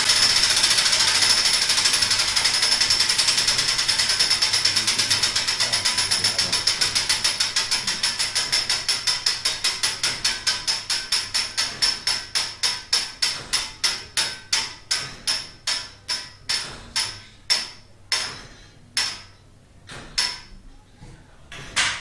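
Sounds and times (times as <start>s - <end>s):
clock mechanism metallic clicking: 0.0s - 17.2s.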